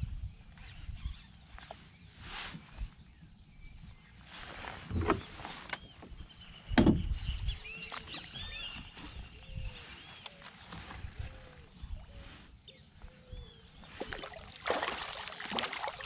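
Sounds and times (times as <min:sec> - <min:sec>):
fish splashing at water surface: 0:14.0 - 0:16.0.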